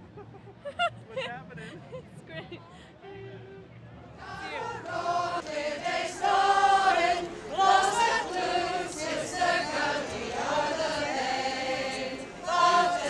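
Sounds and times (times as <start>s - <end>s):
voices singing together: 4.2s - 13.0s.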